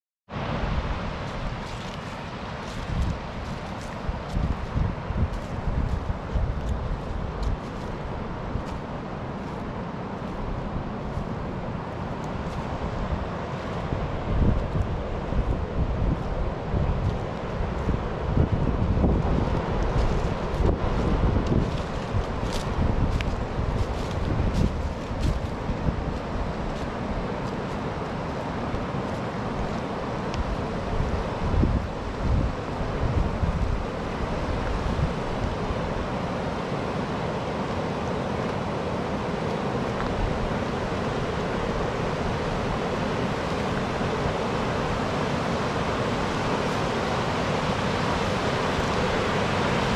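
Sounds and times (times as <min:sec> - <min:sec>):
river water pouring over weir: 0:00.4 - 0:49.9
wind buffeting microphone: 0:00.5 - 0:49.9.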